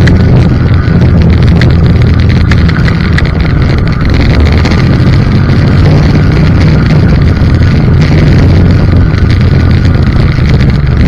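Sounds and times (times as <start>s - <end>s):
snowmobile engine running: 0.0s - 11.0s
wind buffeting microphone: 0.0s - 11.0s.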